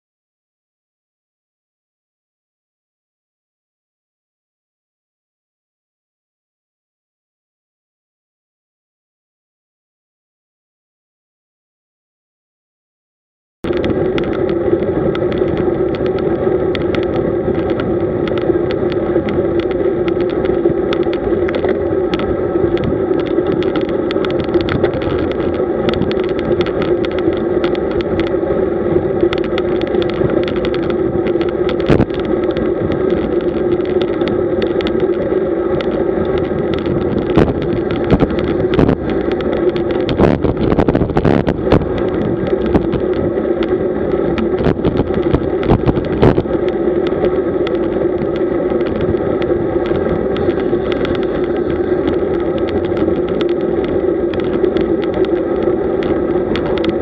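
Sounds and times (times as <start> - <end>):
bicycle clicks and rattles: 13.6 - 57.0
wind and road noise: 13.6 - 57.0.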